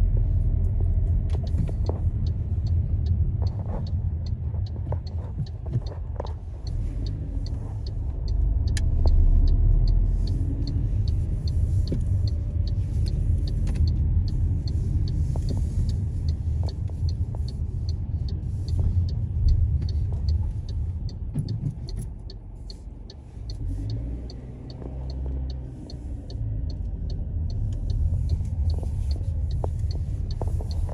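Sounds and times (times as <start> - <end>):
road and engine rumble in car: 0.0 - 30.9
light ticks: 0.1 - 30.9.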